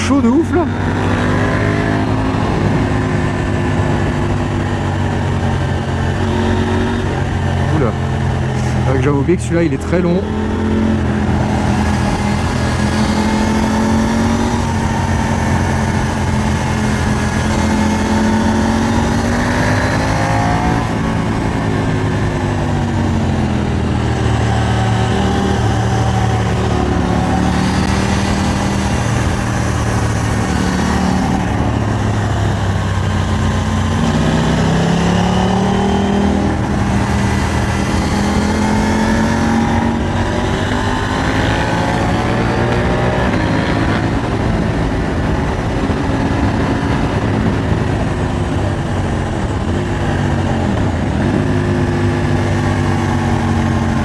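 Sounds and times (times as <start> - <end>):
motorcycle engine running: 0.0 - 54.0
wind rush: 0.7 - 9.0, 10.2 - 54.0.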